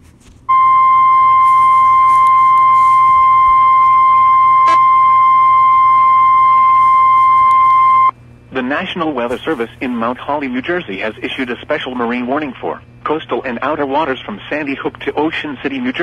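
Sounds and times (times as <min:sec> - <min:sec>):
loud steady high beep: 0:00.5 - 0:08.1.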